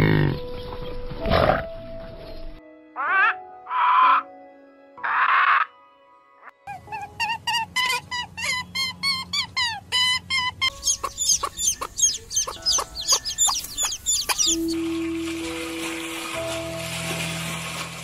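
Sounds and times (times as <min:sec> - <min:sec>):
short pitched calls: 0:06.7 - 0:14.8
high falling chirps: 0:07.5 - 0:14.8
chickens clucking: 0:10.0 - 0:14.8.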